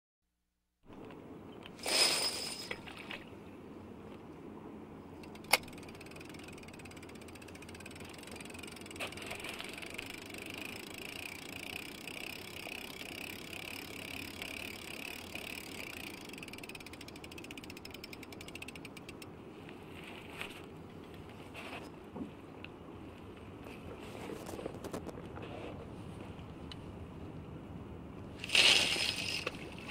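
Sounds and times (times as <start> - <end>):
fishing reel gears ticking: 5.2 - 19.3.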